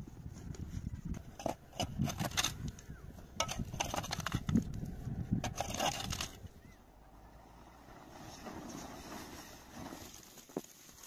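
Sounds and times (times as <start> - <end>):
scrape or rustle: 7.8 - 11.0.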